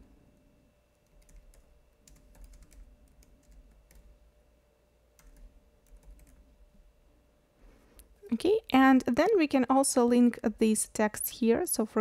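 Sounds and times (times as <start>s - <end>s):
typing on computer keyboard: 1.0s - 4.1s, 5.2s - 6.4s.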